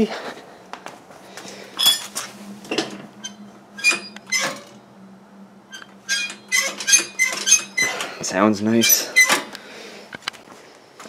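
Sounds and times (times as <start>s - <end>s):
metallic throttle linkage clacks: 5.7s - 8.2s.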